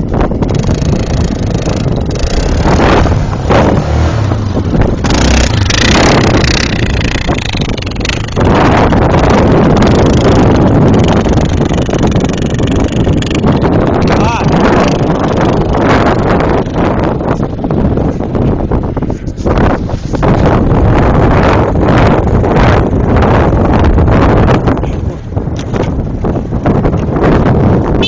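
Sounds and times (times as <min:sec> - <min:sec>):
quad engine revving: 0:00.4 - 0:17.3.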